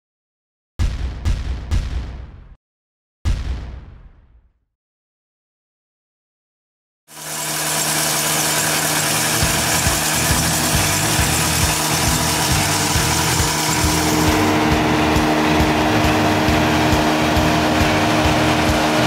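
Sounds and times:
diesel engine running: 7.1 - 19.0.

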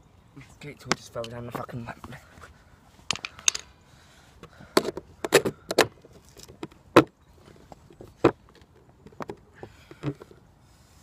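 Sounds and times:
skateboard wheel clicks and knocks: 4.8 - 7.2, 8.0 - 10.4.

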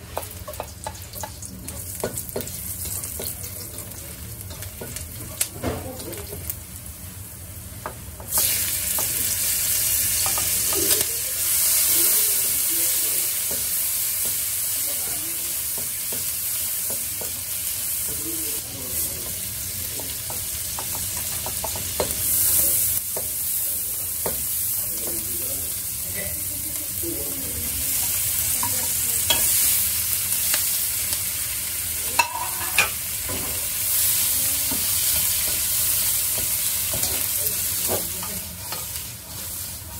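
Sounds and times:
food sizzling in oil: 0.0 - 39.9
spatula scraping a wok: 32.2 - 39.9.

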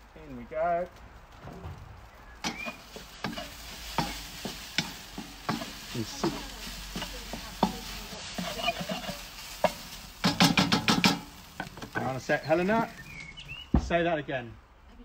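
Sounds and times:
rice sizzling: 0.0 - 14.2
wooden spatula scraping metal wok: 2.3 - 13.5.

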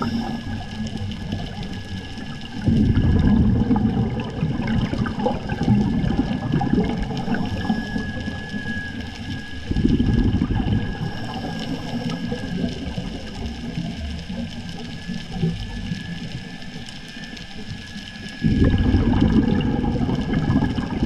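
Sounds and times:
exhaled bubbles gurgling underwater: 0.0 - 21.0.

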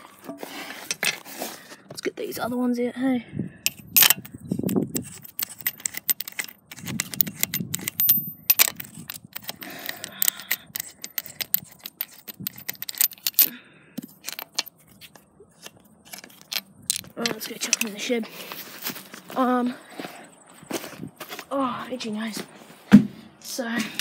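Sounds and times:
handling rustle: 0.0 - 2.0, 3.7 - 23.0
socket wrench clicking on metal: 3.7 - 14.7.

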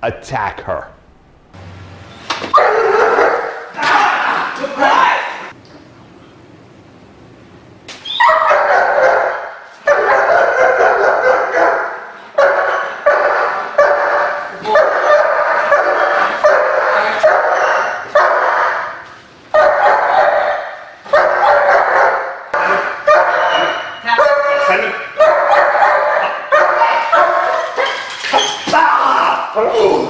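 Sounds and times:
dog barking hard: 2.6 - 3.7, 8.2 - 18.9, 19.5 - 28.1.

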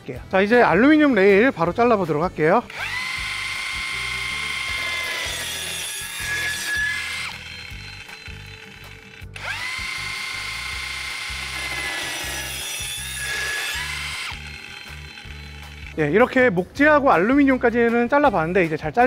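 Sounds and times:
drill cutting disc whining: 2.6 - 16.3.

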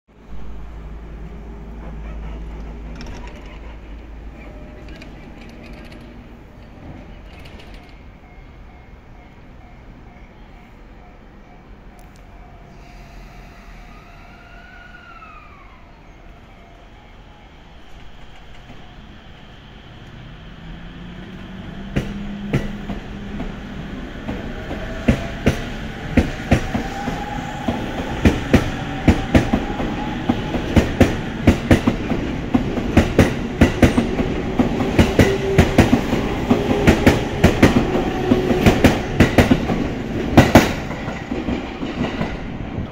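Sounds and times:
train wheels clicking over rail joints: 1.8 - 8.1, 21.1 - 23.6, 24.2 - 42.6.

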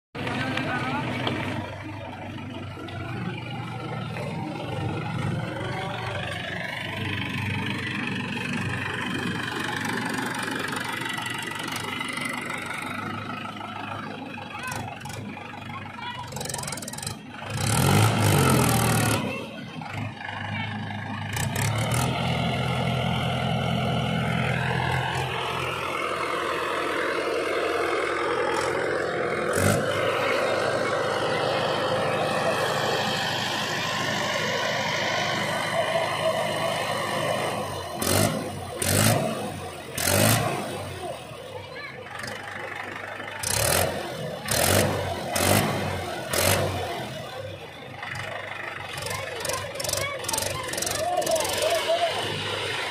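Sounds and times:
tractor diesel engine revving: 0.1 - 52.9
loud engine bursts: 4.6 - 52.9.

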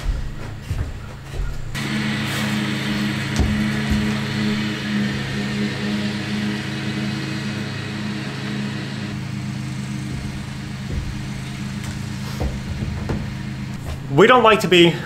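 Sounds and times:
lawn mower engine running: 1.7 - 15.0.

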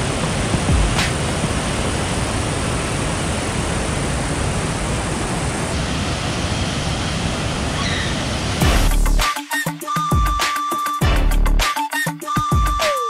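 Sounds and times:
waterfall rushing over boulders: 0.0 - 9.0.

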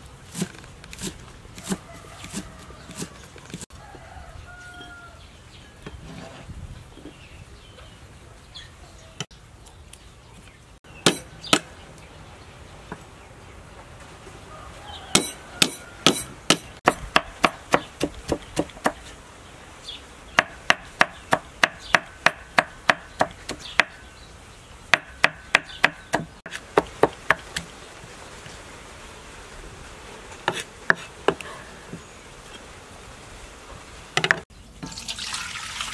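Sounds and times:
cleaver chopping on wooden block: 11.0 - 11.7, 15.1 - 19.1, 20.4 - 24.0, 24.9 - 27.7.

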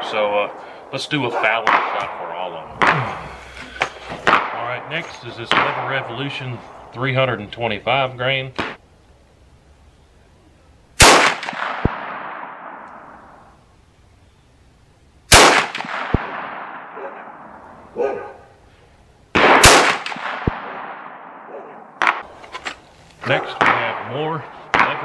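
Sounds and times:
rifle shots with echo: 1.4 - 3.1, 4.2 - 6.9, 11.0 - 13.5, 15.3 - 17.8, 19.3 - 22.3, 23.4 - 25.0.

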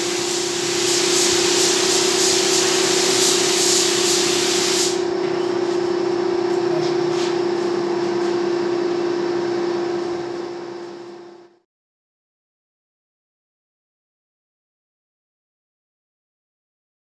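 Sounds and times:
spray gun hissing: 0.0 - 5.0
steady motor hum: 0.0 - 11.6.

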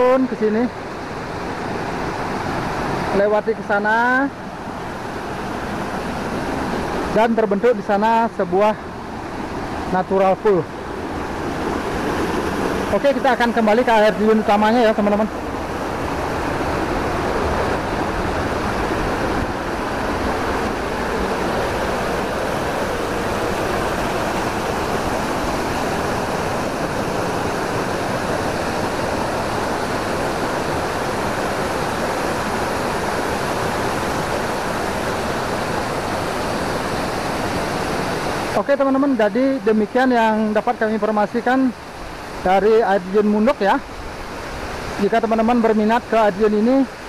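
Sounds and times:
stream spilling over rocks: 0.0 - 47.0
waterfall rushing: 0.0 - 47.0.

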